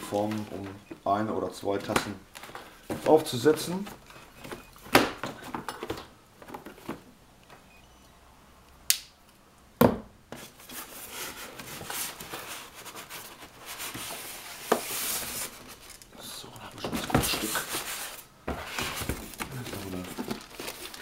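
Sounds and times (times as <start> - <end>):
cardboard and foam rustling: 0.0 - 0.8, 10.3 - 21.0.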